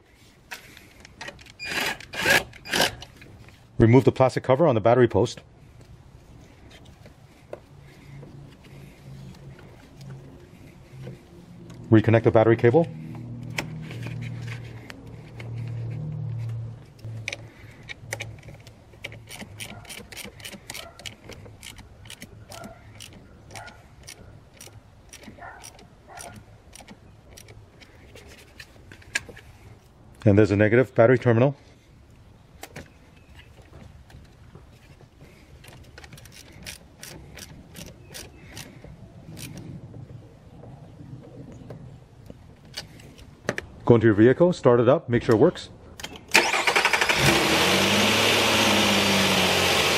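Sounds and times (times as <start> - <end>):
hand ratchet clicking: 17.3 - 23.2, 35.6 - 38.7.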